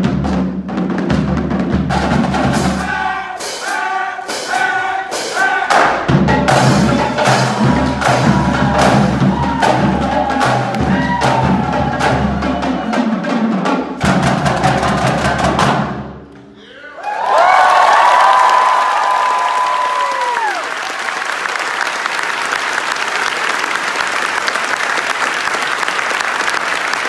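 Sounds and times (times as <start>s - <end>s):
marching drumline playing: 0.0s - 16.3s.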